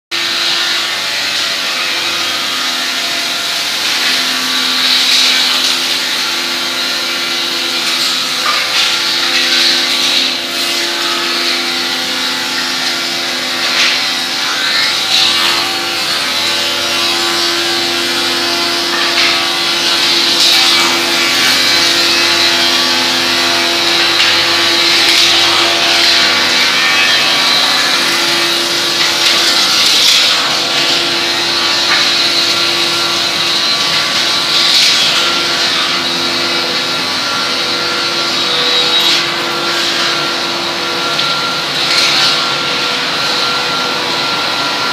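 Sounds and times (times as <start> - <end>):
woodworking machines droning: 0.1 - 44.9.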